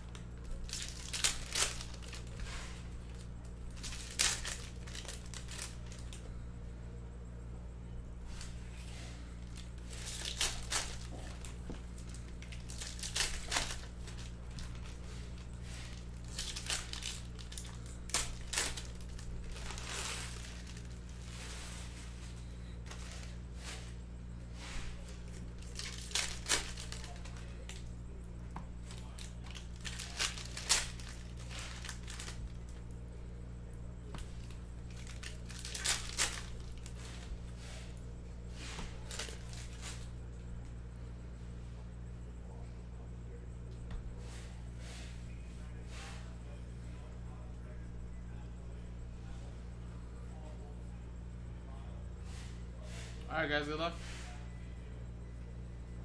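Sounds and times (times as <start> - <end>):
wrappers tearing and crinkling: 0.0 - 6.2, 8.3 - 24.0, 24.9 - 28.0, 28.8 - 33.0, 34.1 - 38.0, 38.6 - 40.2.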